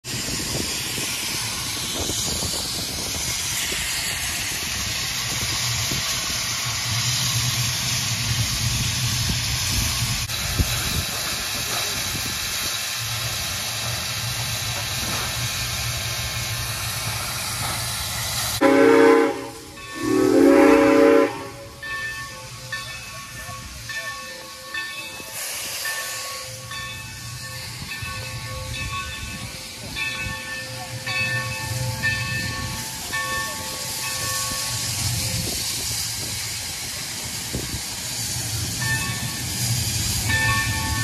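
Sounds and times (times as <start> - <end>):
steam locomotive hissing: 0.0 - 41.0
steam whistle blasts: 18.6 - 21.9.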